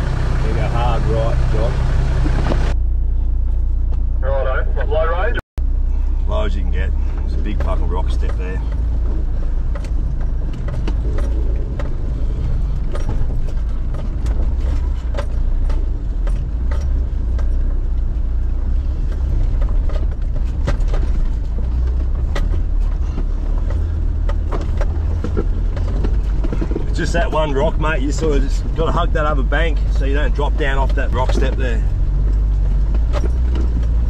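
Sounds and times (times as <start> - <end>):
vehicle engine running low: 0.0 - 34.0
sharp knocks and clicks: 7.2 - 29.1, 29.7 - 34.0.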